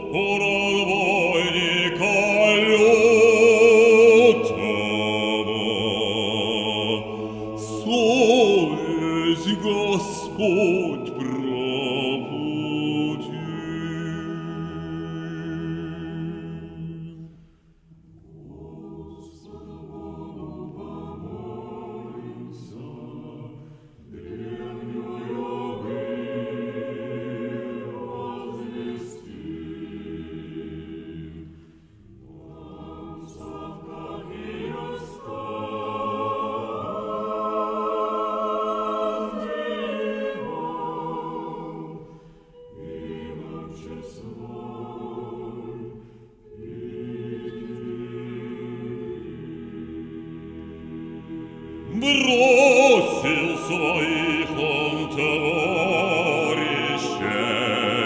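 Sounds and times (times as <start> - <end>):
choir singing: 0.0 - 58.0.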